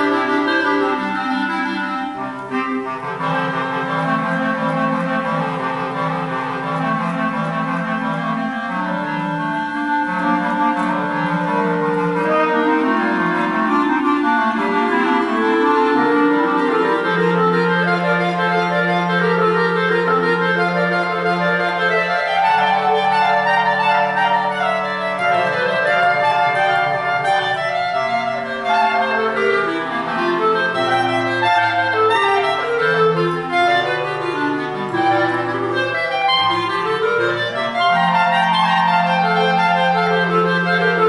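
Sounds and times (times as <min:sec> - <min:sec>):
clarinet quartet playing: 0:00.0 - 0:41.0
long low bass clarinet note: 0:00.0 - 0:41.0.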